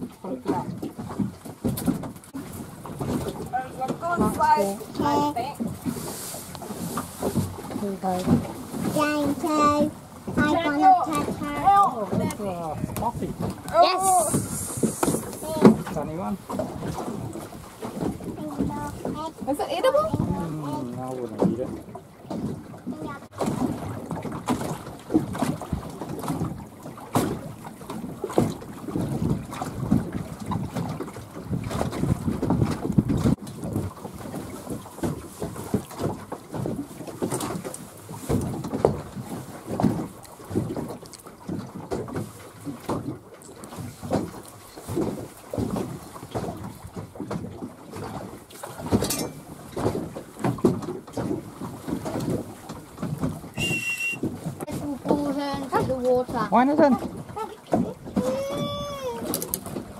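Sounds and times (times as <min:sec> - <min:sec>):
wind buffeting microphone: 0:00.0 - 0:43.2
water slapping against hull: 0:00.0 - 0:59.9
short hiss: 0:14.0 - 0:15.4.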